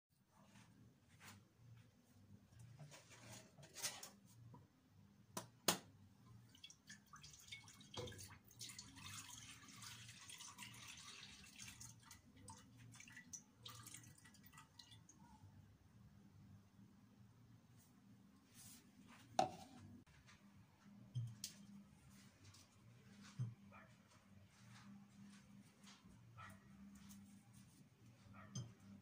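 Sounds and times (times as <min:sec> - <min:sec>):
milk splashing into a metal pot: 0:06.4 - 0:15.2.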